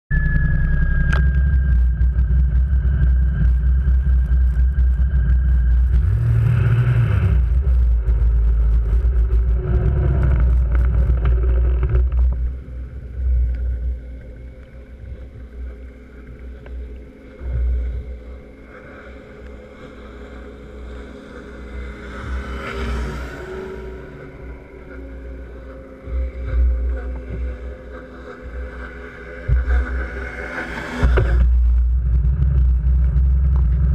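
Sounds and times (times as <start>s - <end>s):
snowmobile engine rumble: 0.1s - 33.9s
second snowmobile passing close: 19.7s - 31.4s.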